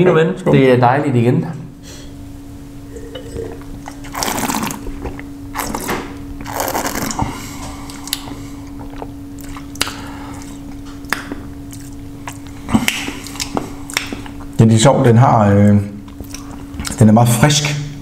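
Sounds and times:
low hum: 1.5 - 16.8
wine slurping: 2.9 - 9.2.

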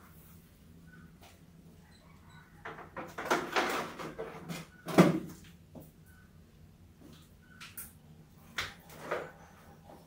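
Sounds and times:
rats scrabbling and knocking: 2.6 - 5.5.

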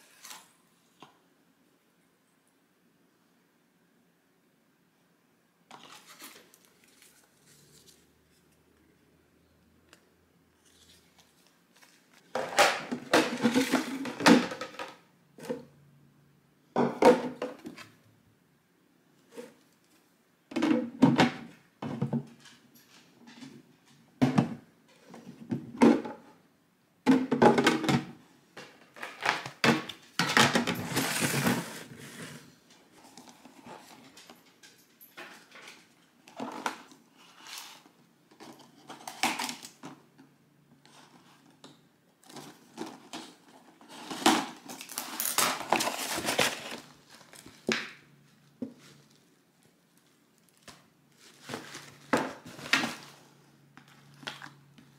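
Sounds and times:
plastic boxes knocking: 12.4 - 15.6.

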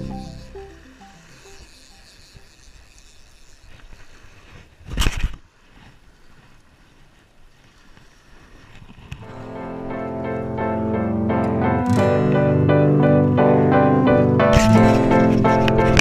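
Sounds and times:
piano music: 0.0 - 1.3, 9.2 - 16.0.

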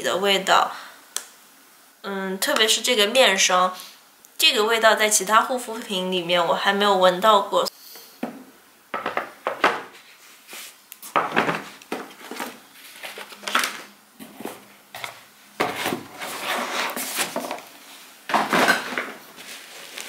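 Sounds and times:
clattering and rustling: 11.1 - 17.7, 18.3 - 20.0.

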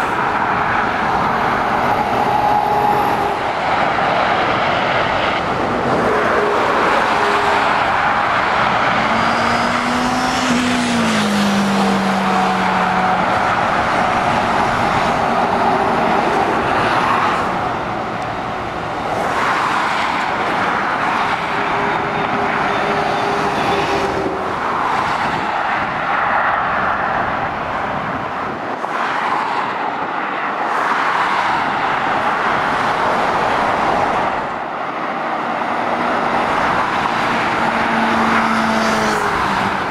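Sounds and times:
heavy diesel engine passing: 0.0 - 19.4
road traffic passing: 0.0 - 39.9.

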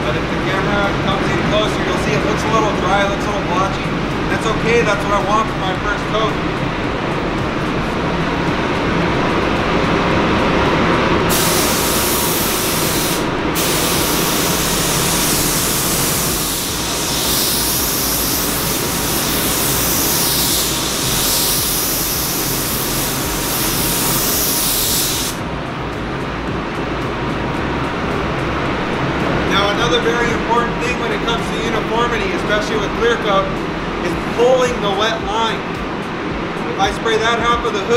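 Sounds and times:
paint spray gun hissing: 11.3 - 25.4.

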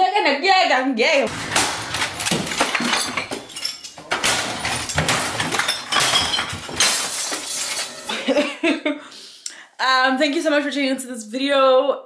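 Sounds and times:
crashes of thrown objects: 1.3 - 8.1
glass breaking: 1.3 - 8.1.

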